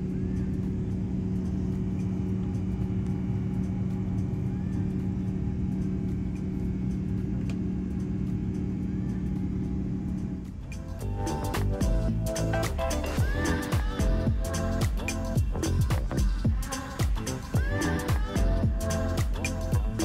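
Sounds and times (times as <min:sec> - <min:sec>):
airplane cabin engine rumble: 0:00.0 - 0:20.0
constant cabin hum: 0:00.0 - 0:20.0.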